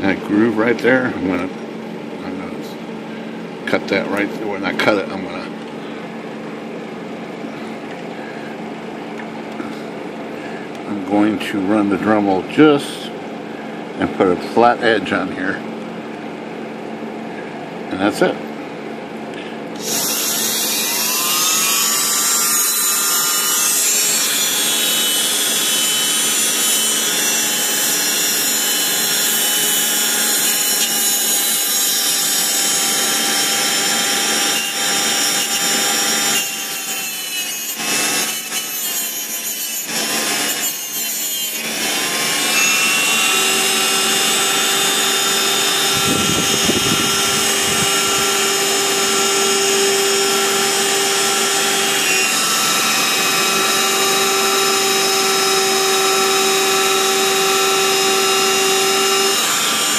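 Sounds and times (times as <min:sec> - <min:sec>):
rotary tool grinding metal: 0:19.8 - 0:59.9.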